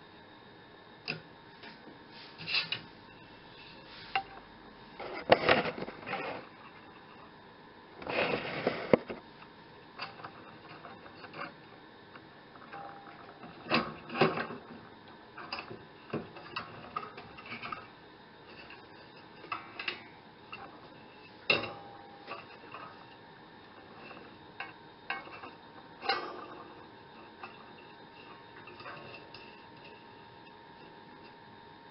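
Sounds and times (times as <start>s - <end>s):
metal scraping rustle: 2.1s - 2.8s, 5.0s - 7.2s, 8.0s - 9.2s, 18.5s - 30.2s.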